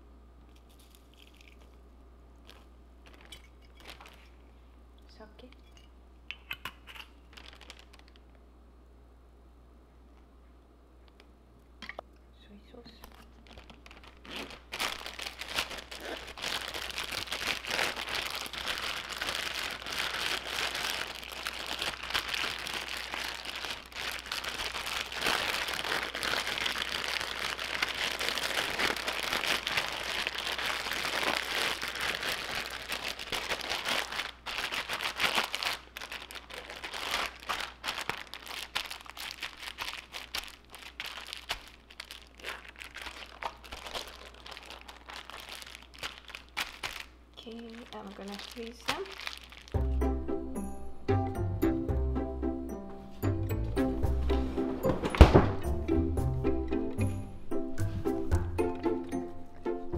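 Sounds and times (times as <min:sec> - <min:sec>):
plastic bag crinkling: 0:00.5 - 0:01.8, 0:02.4 - 0:04.6, 0:06.4 - 0:08.4, 0:12.8 - 0:49.9, 0:54.6 - 0:55.6.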